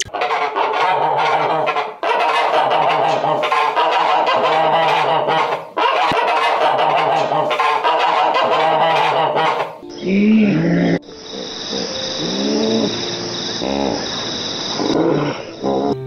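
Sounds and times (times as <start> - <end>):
flock of waterfowl calling: 0.2 - 9.8.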